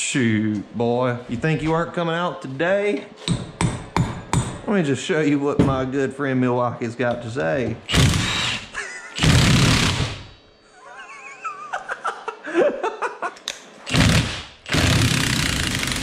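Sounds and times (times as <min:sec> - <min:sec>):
impact wrench hammering: 0:03.2 - 0:04.7, 0:07.9 - 0:10.4, 0:13.9 - 0:16.0.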